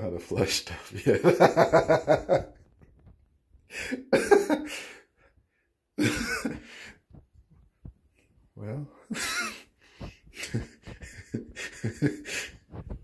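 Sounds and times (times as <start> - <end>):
man laughing: 1.0 - 2.6, 3.7 - 5.0, 6.0 - 6.8, 9.0 - 9.7, 10.3 - 12.7.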